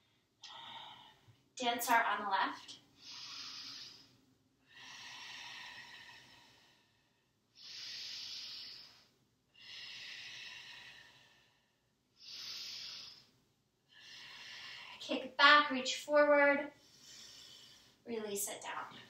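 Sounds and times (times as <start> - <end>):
woman breathing deeply: 0.0 - 1.4, 2.9 - 15.0, 16.8 - 18.0.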